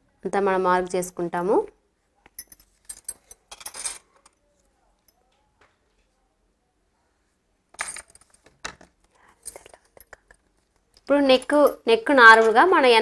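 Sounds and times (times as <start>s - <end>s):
bangles clinking: 2.2s - 4.4s, 7.7s - 8.6s, 9.2s - 12.6s.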